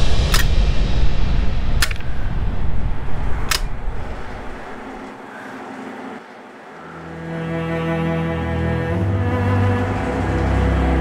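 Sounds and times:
sharp hits: 0.0 - 6.4
low rumbling drone: 0.0 - 11.0
low bowed-string notes: 6.7 - 11.0.

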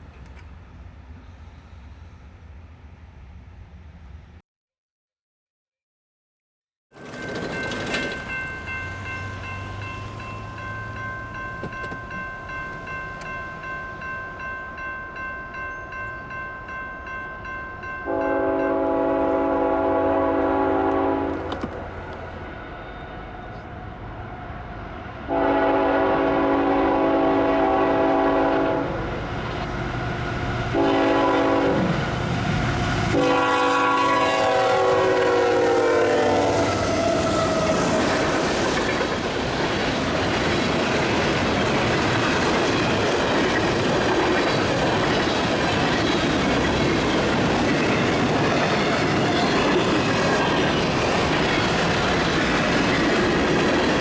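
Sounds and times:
crossing warning bell ringing: 7.0 - 21.5
train rumble: 7.0 - 54.0
locomotive air horn blasts: 18.1 - 21.5, 25.3 - 29.0, 30.8 - 31.9, 33.1 - 37.9.

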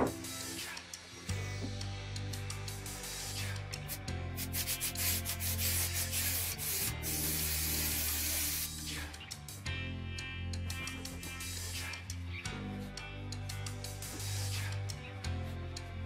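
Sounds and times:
aerosol spray hissing: 2.9 - 9.1, 13.9 - 14.8.

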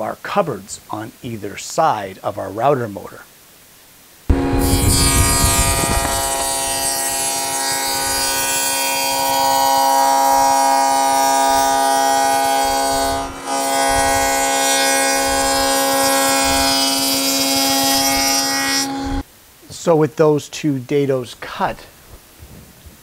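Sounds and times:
table saw cutting plywood: 4.3 - 19.2.

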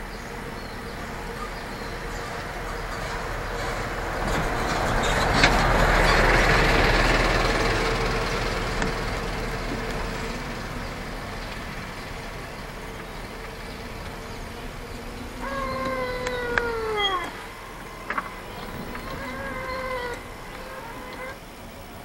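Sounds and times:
golf cart driving: 0.0 - 22.0
faint steady whine: 5.8 - 22.0.

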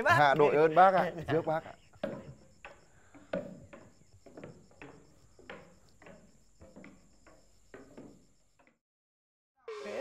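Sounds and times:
crickets chirping: 0.0 - 8.8
footsteps: 1.9 - 8.8.

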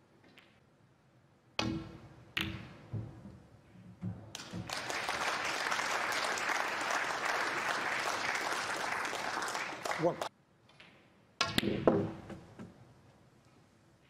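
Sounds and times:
audience applause: 4.4 - 10.3.

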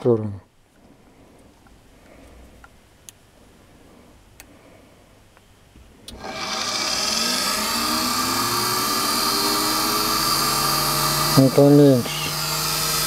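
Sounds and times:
electric motor whining: 6.1 - 13.0
motor brushes hissing: 6.1 - 13.0.

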